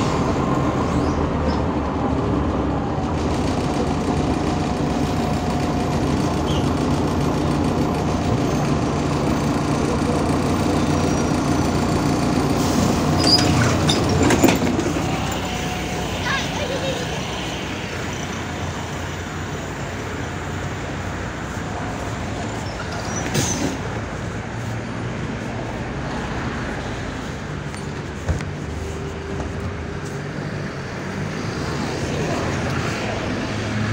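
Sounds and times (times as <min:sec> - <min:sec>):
bus engine hum and road rumble: 0:00.0 - 0:33.9.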